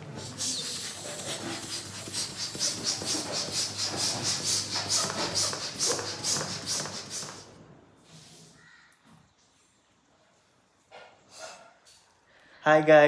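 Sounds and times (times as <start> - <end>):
hand pump hissing air: 0.0 - 7.6.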